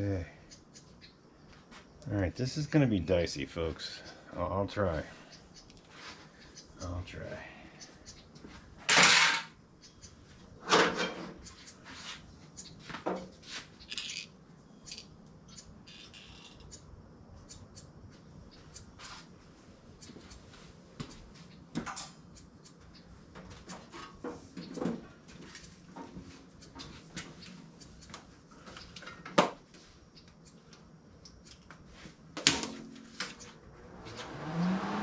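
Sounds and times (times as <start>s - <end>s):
metal tools clunking: 8.8s - 9.5s.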